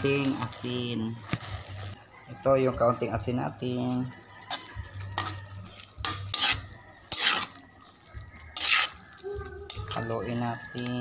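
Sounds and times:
utensil scraping metal wok: 3.6 - 11.0.

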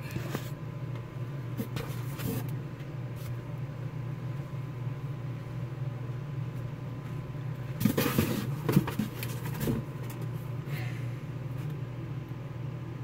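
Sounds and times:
objects rustling and knocking: 7.7 - 10.4.

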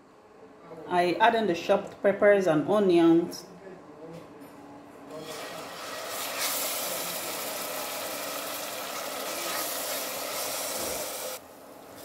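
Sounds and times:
vegetables sizzling in oil: 5.2 - 12.0.

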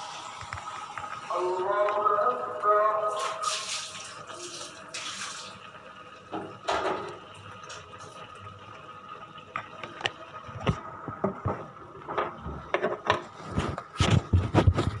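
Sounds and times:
kitchen clatter and knocks: 6.3 - 7.2, 11.2 - 15.0.

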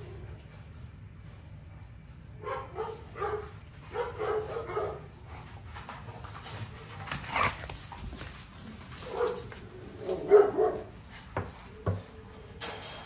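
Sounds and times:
dogs barking and yipping: 2.4 - 5.1, 9.0 - 11.0.

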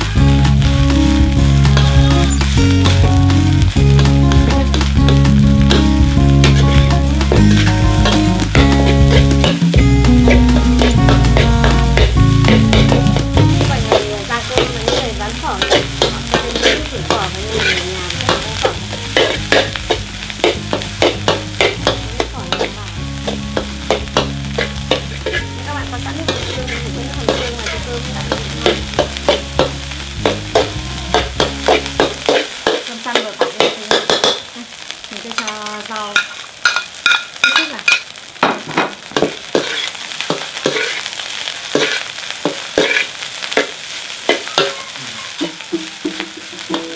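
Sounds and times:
rice sizzling: 0.0 - 46.9
metal ladle scraping a wok: 4.0 - 25.6, 26.2 - 32.9, 39.2 - 41.1, 41.8 - 43.7.

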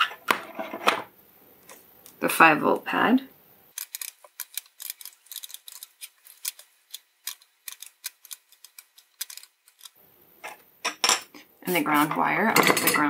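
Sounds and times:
solder flux crackling: 3.7 - 10.0.

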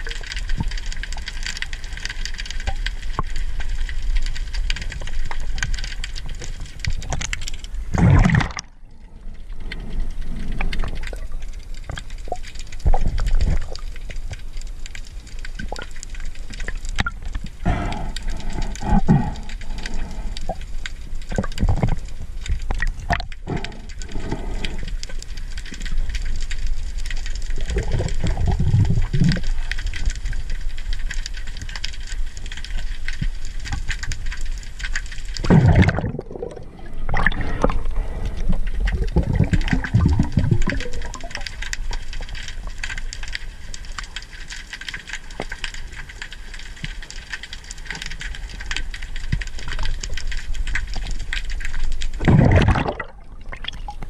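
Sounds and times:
underwater crackle and hiss: 0.0 - 54.0
low rush of moving water: 7.6 - 11.9, 35.4 - 41.4, 52.2 - 54.0.

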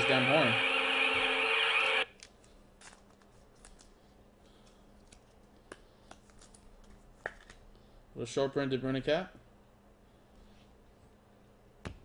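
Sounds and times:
electric horn sounding: 0.0 - 2.1
clicks and rustles of plastic sleeve: 2.1 - 7.7.

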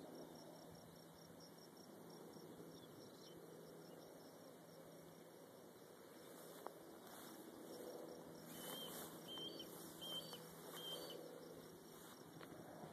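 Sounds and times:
background hiss: 0.0 - 12.9
bird chirping: 8.5 - 11.4.

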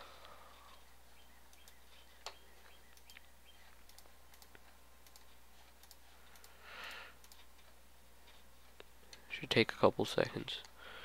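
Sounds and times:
faint low hum: 0.0 - 11.0
computer mouse clicking: 1.4 - 9.2.

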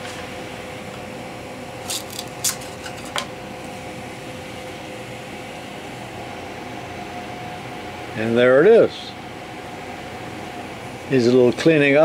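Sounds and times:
cooling fans humming: 0.0 - 12.0.

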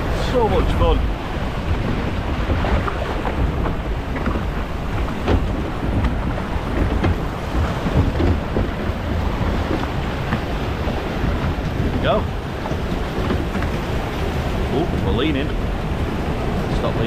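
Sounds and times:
water rushing and splashing: 0.0 - 17.0
wind buffeting microphone: 0.0 - 17.0.

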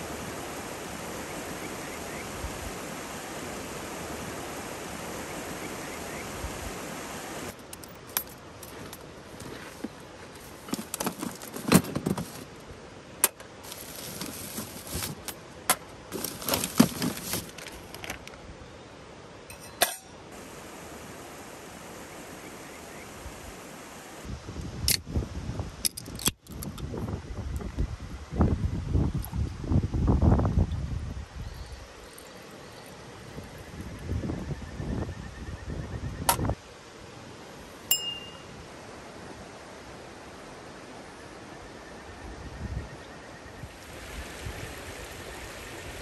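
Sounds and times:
stream water rushing: 0.0 - 18.2, 19.0 - 24.3, 36.6 - 41.6, 43.7 - 46.0
camping gear clinking: 7.5 - 12.6, 13.2 - 18.4, 19.5 - 20.2, 37.9 - 38.5.

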